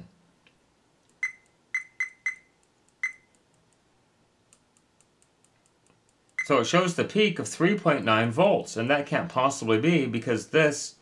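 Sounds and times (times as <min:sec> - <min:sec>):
multimeter short high beeps: 0:01.2 - 0:03.3.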